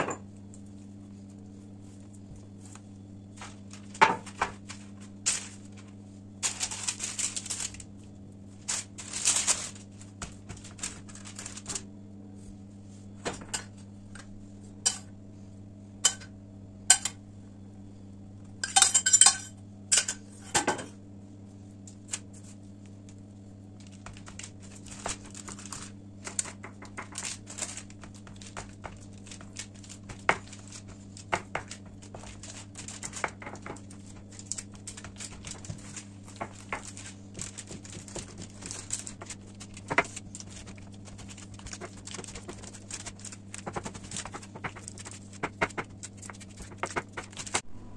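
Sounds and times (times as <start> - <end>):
low steady hum: 0.0 - 47.9
parchment paper rustling: 0.8 - 13.8, 23.5 - 47.6
hands pressing dough: 23.9 - 47.6
baking tray knocking: 35.2 - 47.6.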